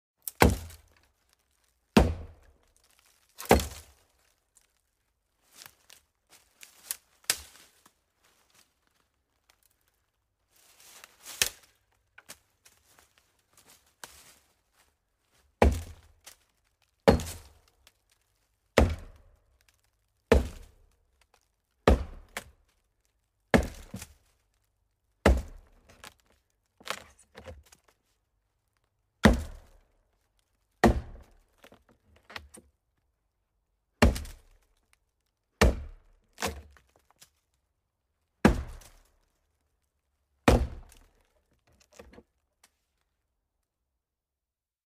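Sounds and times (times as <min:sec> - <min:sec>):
axe chopping hollow tree trunk: 0:00.2 - 0:01.0, 0:02.0 - 0:02.5, 0:03.4 - 0:03.9, 0:07.2 - 0:07.6, 0:15.6 - 0:16.2, 0:17.0 - 0:17.6, 0:18.8 - 0:19.3, 0:20.3 - 0:20.8, 0:21.8 - 0:22.6, 0:23.5 - 0:24.1, 0:25.2 - 0:26.1, 0:26.8 - 0:27.7, 0:29.2 - 0:29.8, 0:30.8 - 0:31.7, 0:34.0 - 0:34.6, 0:35.6 - 0:36.9, 0:38.4 - 0:39.1, 0:40.4 - 0:41.2.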